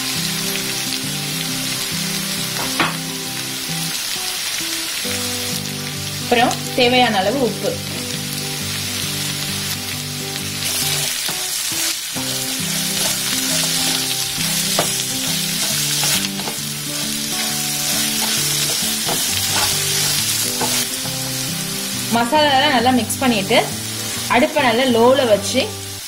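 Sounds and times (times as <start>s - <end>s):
potatoes sizzling in oil: 0.0s - 26.0s
wooden spatula scraping pan: 12.7s - 20.9s.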